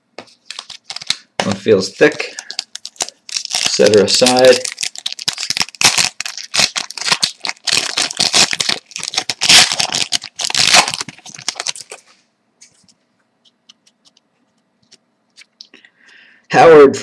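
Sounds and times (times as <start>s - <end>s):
plastic wrapper tearing and crinkling: 0.4s - 1.3s, 2.0s - 12.1s.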